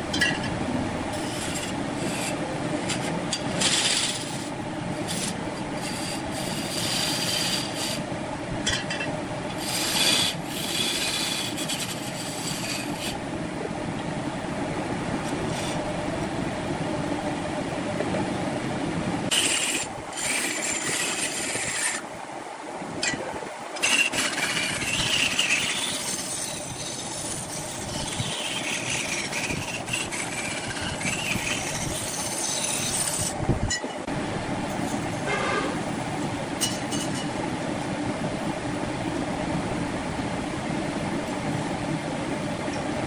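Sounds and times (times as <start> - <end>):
gouge scraping spinning wood: 0.0 - 8.1, 9.5 - 13.3, 15.0 - 16.4, 19.3 - 22.1, 23.7 - 33.4, 34.6 - 37.4
wood lathe humming: 0.0 - 8.1, 9.4 - 17.9, 19.3 - 22.3, 23.6 - 33.4.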